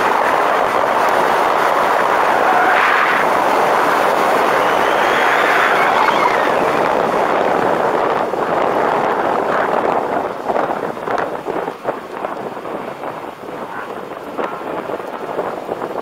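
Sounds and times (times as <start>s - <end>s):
wind and road noise: 0.0s - 16.0s
tyres squealing: 4.4s - 6.6s.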